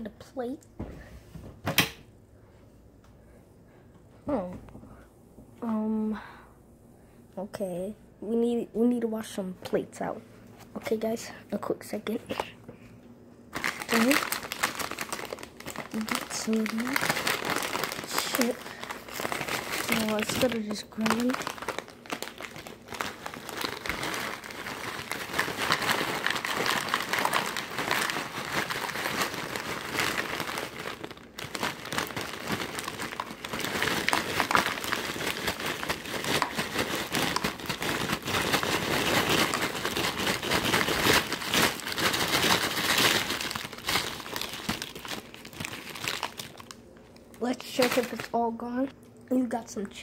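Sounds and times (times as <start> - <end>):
potato chips crunching: 13.5 - 46.8, 47.6 - 48.4.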